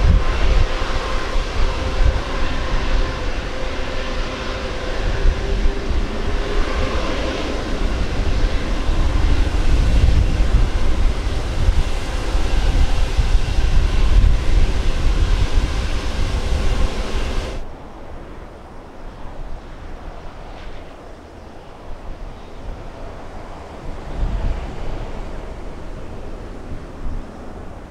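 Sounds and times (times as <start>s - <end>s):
deep loud airliner rumble: 0.0s - 27.9s
jet engine whine: 0.0s - 27.9s.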